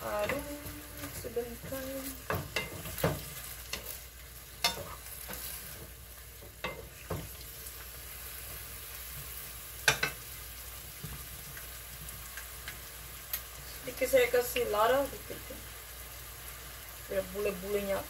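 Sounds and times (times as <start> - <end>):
vegetables sizzling in frying pan: 0.0 - 18.0.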